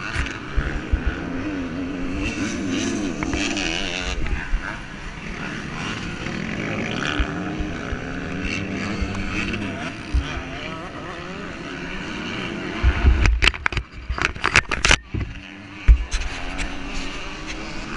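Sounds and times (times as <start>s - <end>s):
motocross bikes revving: 0.0s - 17.9s
rubbing and knocking on microphone: 12.8s - 16.7s.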